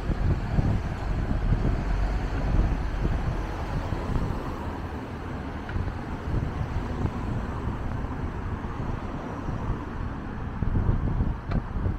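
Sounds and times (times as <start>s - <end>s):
street traffic: 0.0s - 11.9s
wind buffeting microphone: 0.0s - 11.9s.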